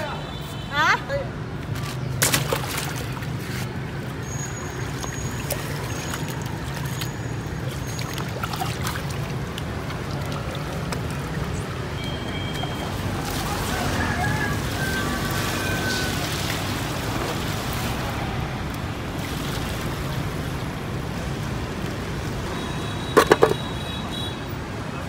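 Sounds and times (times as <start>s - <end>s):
water sloshing and splashing: 1.4s - 24.0s.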